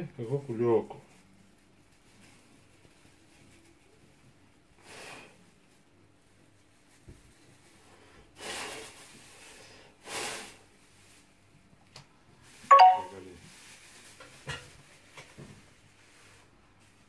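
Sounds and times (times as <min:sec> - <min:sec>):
plastic bag rustling: 0:01.0 - 0:04.8, 0:05.4 - 0:07.9, 0:08.5 - 0:09.6, 0:10.5 - 0:11.7, 0:12.4 - 0:17.0
loud ringing tone: 0:12.7 - 0:13.2.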